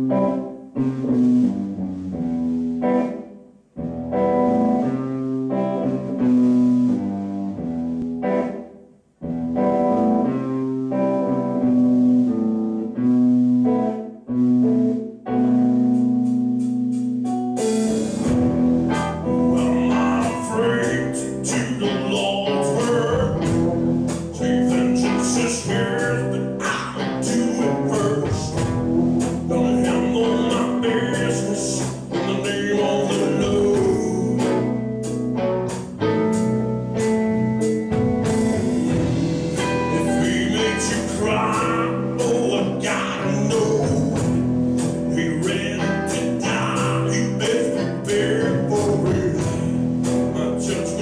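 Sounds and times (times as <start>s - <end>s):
drums: 0.0s - 51.0s
held band chords: 0.0s - 51.0s.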